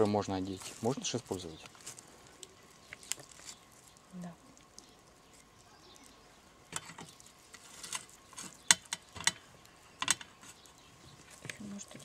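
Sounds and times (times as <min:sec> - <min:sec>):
plastic bag rustling: 0:00.0 - 0:04.1.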